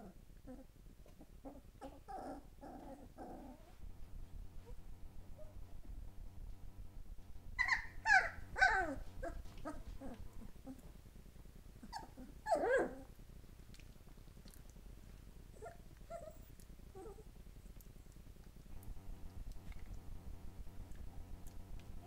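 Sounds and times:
puppies whimpering and yelping: 7.6 - 10.8, 11.8 - 13.1.

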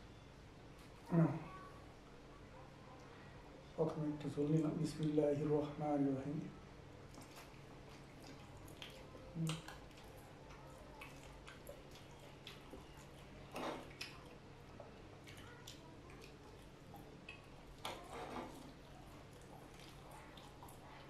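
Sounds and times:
faint low hum: 0.0 - 21.0
mouth clicks and lip smacks: 7.1 - 13.2.

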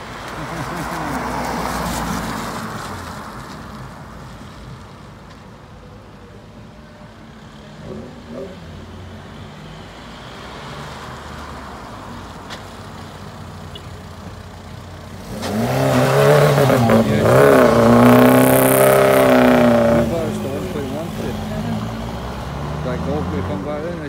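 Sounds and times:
car engine revving: 15.0 - 24.0.

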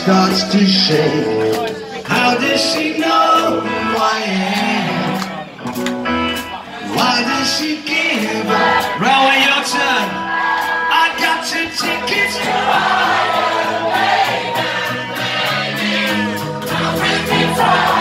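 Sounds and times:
crowd singing along: 0.0 - 5.6, 6.7 - 18.0
live rock band playing: 0.0 - 18.0
steady drumbeat: 11.8 - 18.0.

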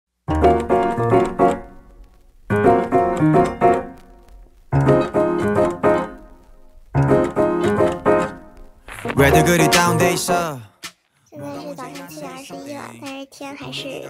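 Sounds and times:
piano playing short phrases: 8.9 - 10.6, 11.4 - 14.0.

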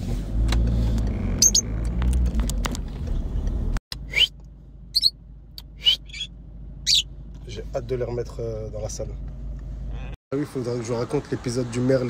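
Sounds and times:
birds chirping: 5.8 - 7.1.

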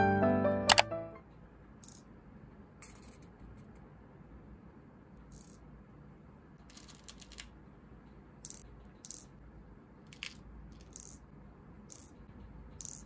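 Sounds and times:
plastic beads clicking: 6.6 - 7.6, 8.4 - 9.4, 10.1 - 11.3, 11.9 - 12.2, 12.8 - 13.0.

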